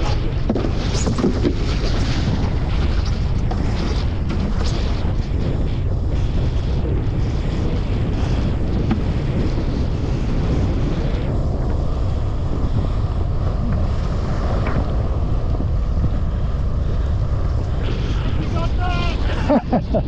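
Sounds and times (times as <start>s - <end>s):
wind rumble on microphone: 0.0s - 20.0s
water rushing and spraying: 11.8s - 19.9s.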